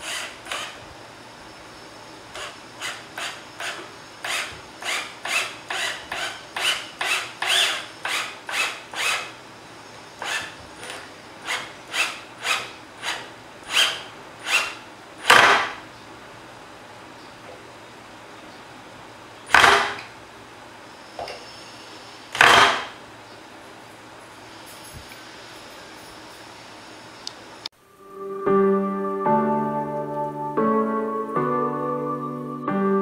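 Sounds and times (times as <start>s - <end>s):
cordless drill whirring: 0.0s - 0.8s, 2.3s - 9.4s, 10.2s - 15.7s.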